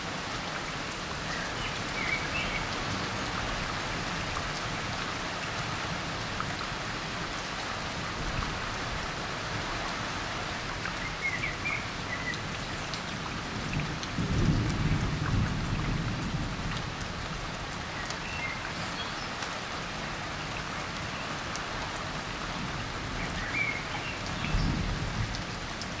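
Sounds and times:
heavy rain pattering: 0.0s - 26.0s.

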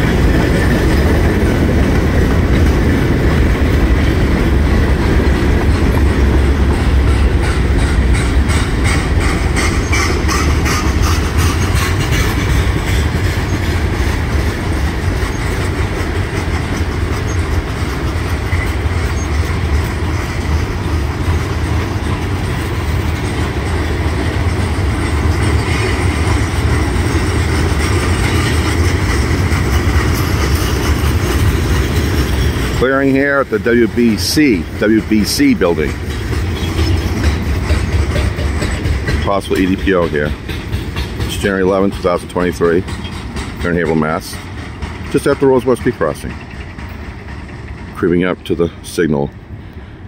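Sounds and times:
steel wheels rumbling on rail: 0.0s - 50.0s
wheels clacking over rail joints: 0.0s - 50.0s.

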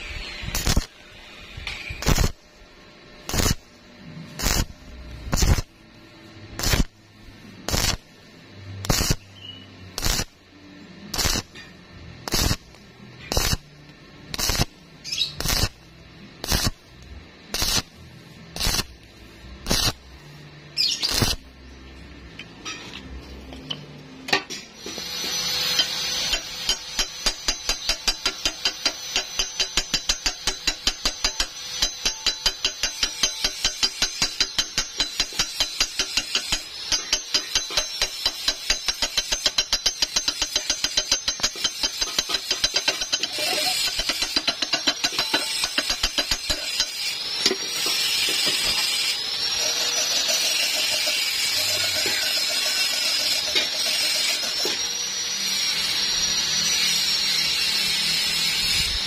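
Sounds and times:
welding arc crackling: 0.0s - 22.3s, 24.8s - 59.0s
hammer tapping metal: 25.8s - 48.8s.

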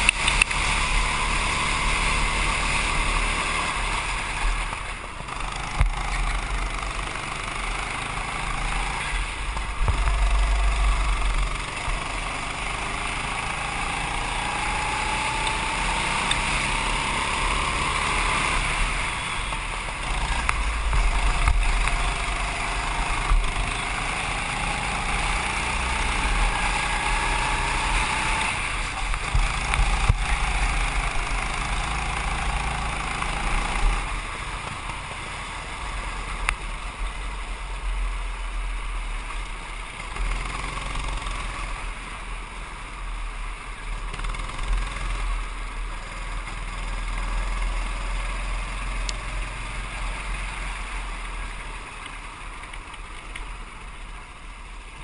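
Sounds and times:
go-kart engine revving: 0.0s - 55.0s.

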